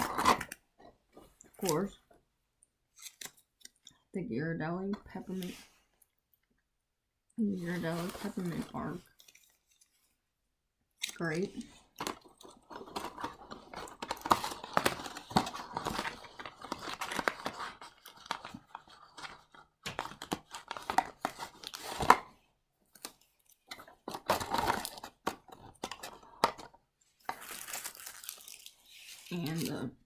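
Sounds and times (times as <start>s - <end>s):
plastic wrappers crinkling: 7.8s - 10.2s, 11.1s - 22.2s, 27.2s - 29.9s.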